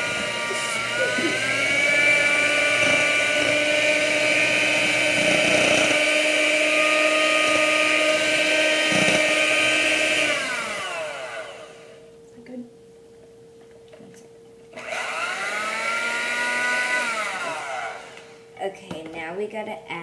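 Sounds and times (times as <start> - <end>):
electric hand mixer whining: 0.0 - 12.1, 14.7 - 18.4.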